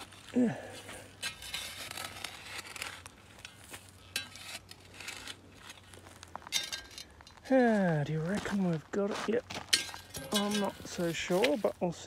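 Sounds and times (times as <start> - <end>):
digging tool scraping hard soil: 0.0 - 7.4, 9.8 - 11.8
dirt crumbling and rustling: 0.0 - 12.0.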